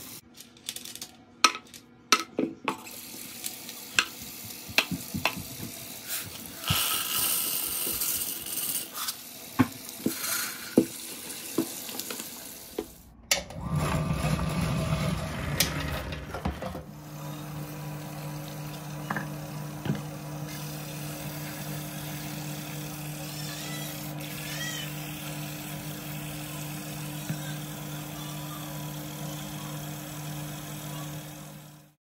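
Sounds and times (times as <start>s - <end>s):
metal pieces clinking: 0.3s - 1.9s
tap water running into tub: 2.9s - 13.0s, 13.8s - 31.9s.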